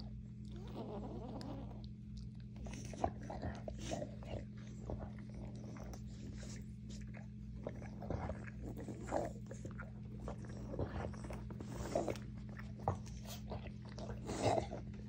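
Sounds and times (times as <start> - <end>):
dog licking and snuffling: 0.0 - 15.0
steady low hum: 0.0 - 15.0.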